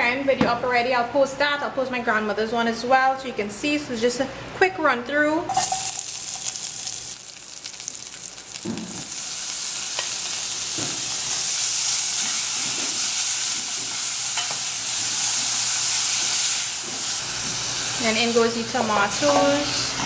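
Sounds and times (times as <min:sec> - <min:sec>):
food sizzling in oil: 0:05.5 - 0:20.0.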